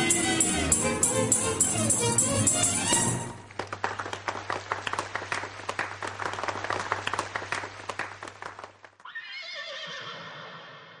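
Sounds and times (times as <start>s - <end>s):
audience applauding: 3.0s - 9.0s
horse whinny: 9.0s - 11.0s.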